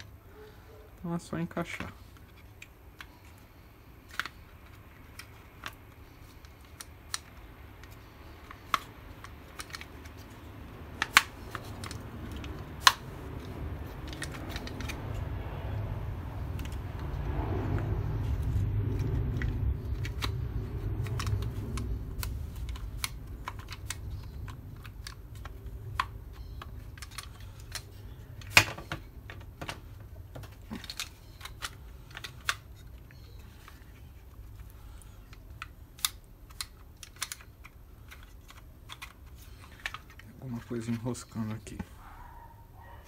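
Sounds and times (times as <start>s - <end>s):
low handling rumble: 12.0s - 26.4s.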